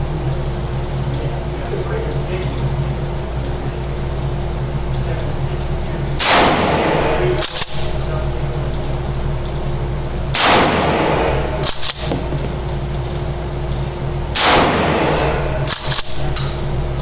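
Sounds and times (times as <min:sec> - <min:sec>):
shotgun blasts: 0:06.2 - 0:08.0, 0:10.3 - 0:12.9, 0:14.3 - 0:16.4.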